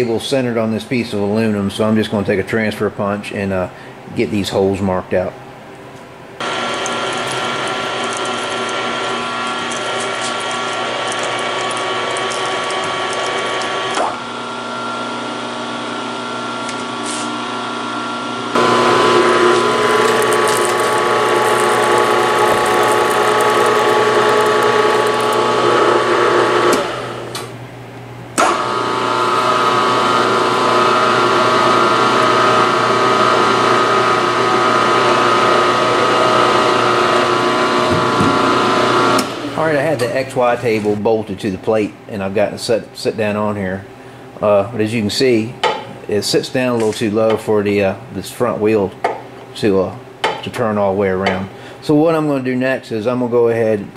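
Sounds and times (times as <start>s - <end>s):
drilling machine whining: 6.4s - 27.5s, 28.4s - 40.0s.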